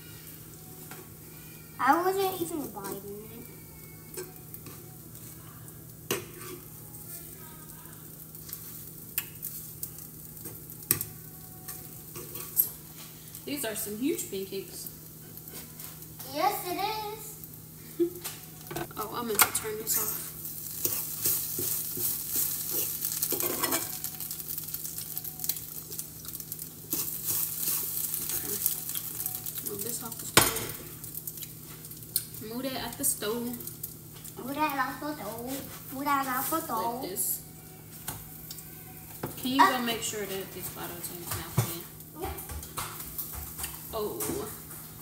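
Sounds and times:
food sizzling: 0:00.0 - 0:45.0
fork scraping a frying pan: 0:06.1 - 0:06.7, 0:11.7 - 0:12.8, 0:19.9 - 0:24.1, 0:26.9 - 0:29.0
fork scraping eggs in a skillet: 0:26.9 - 0:29.0.

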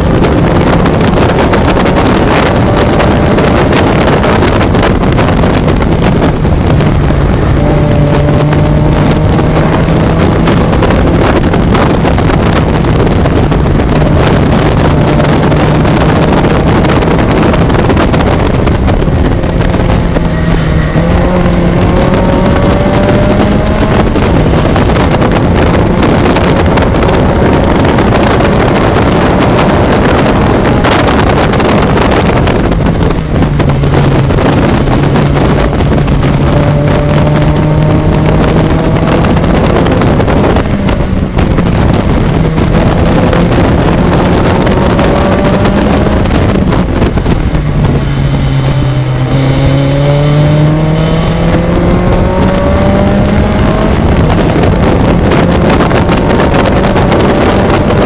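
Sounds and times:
race car engine at high revs: 0:00.0 - 0:58.0
wind buffeting microphone: 0:00.0 - 0:58.0.

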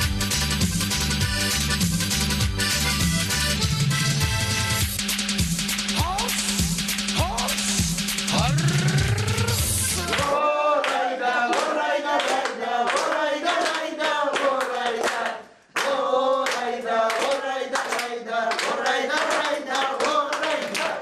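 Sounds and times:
steady hand clapping: 0:04.9 - 0:08.3, 0:10.0 - 0:21.0
voices singing together: 0:09.7 - 0:21.0.

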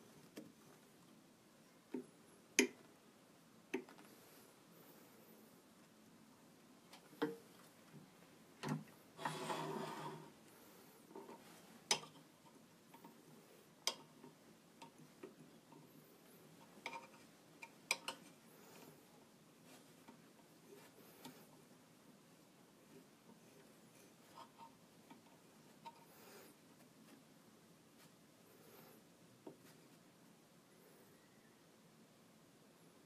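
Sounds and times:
scraping rub: 0:09.2 - 0:11.8.

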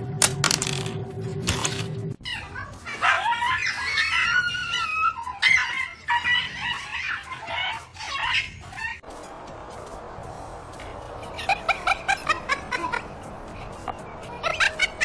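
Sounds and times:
cat and dog crying: 0:02.2 - 0:09.0.

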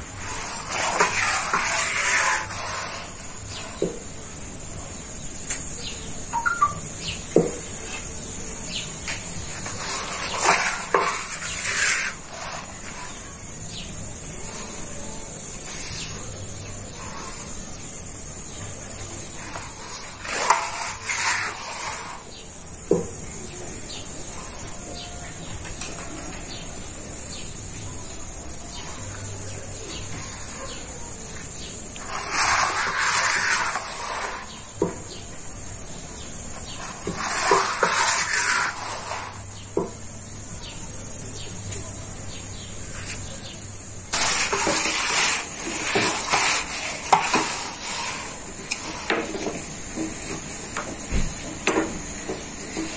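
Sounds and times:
faint short chirps: 0:06.3 - 0:06.9
gas griddle hissing: 0:42.2 - 0:52.9.

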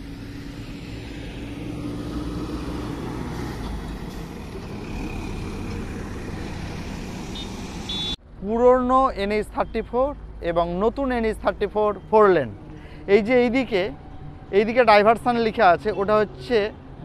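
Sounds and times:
bus passing: 0:00.0 - 0:08.4, 0:09.3 - 0:17.0
heavy truck passing: 0:00.0 - 0:08.4.

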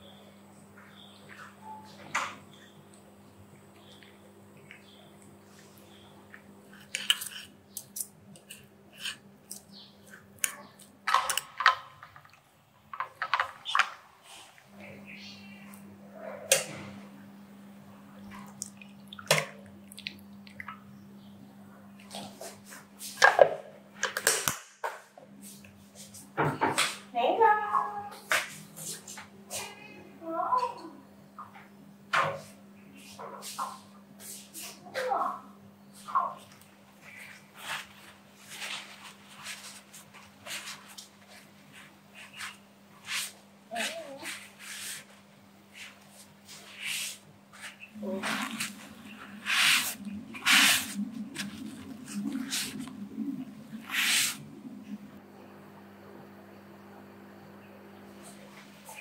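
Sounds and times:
steady low hum: 0:14.1 - 0:24.0, 0:35.4 - 0:59.0
paper towels crinkling on tiled floor: 0:37.2 - 0:52.9.

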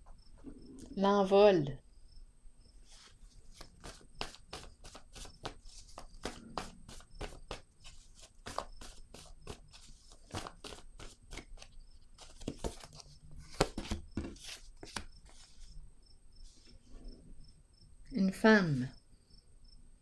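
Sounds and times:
cards shuffled on wooden table: 0:02.9 - 0:15.7.

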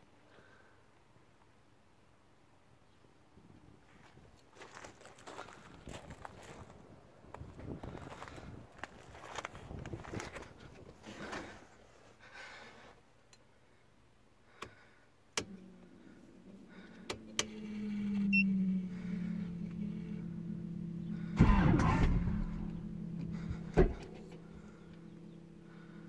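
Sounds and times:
electric motor humming: 0:15.5 - 0:26.0
loud burst: 0:21.2 - 0:24.8.

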